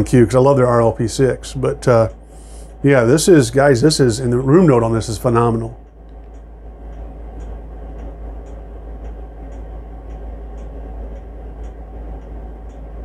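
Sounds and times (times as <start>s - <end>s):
low room hum: 0.0s - 13.0s
faint ticks: 5.8s - 12.9s.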